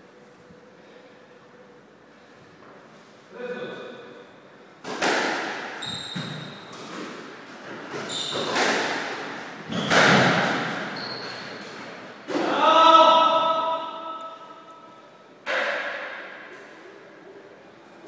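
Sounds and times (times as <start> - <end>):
squash ball hits echoing: 4.8 - 12.7, 15.4 - 16.5
shoes squeaking on wooden floor: 5.8 - 8.7, 10.7 - 12.0.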